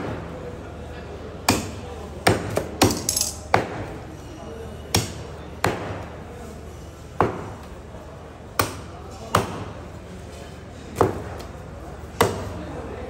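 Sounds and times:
cleaver chopping meat and bone: 0:01.4 - 0:03.8, 0:04.9 - 0:06.0, 0:08.6 - 0:09.7, 0:12.2 - 0:12.5.

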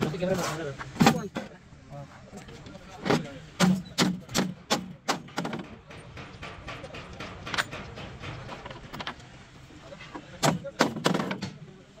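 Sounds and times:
metal bolts clinking and knocking: 0:05.1 - 0:09.2.

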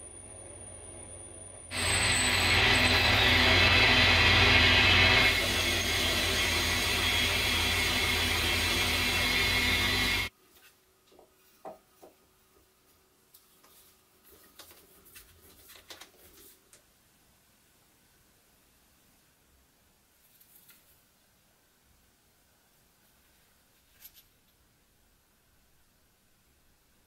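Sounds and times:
metal lathe running: 0:01.7 - 0:10.3.

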